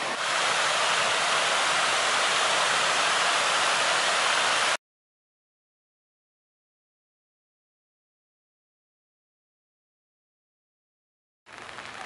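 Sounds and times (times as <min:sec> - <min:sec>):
water rushing over cascade: 0:00.0 - 0:04.8.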